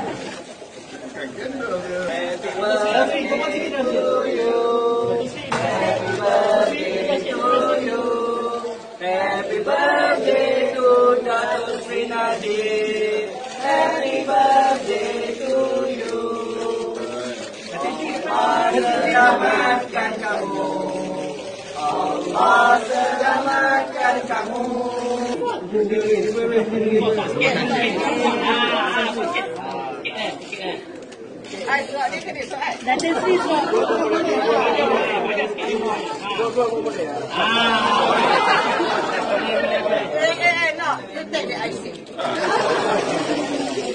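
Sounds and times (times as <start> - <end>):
group singing in unison: 2.0 - 29.2, 37.3 - 40.1, 42.2 - 43.9.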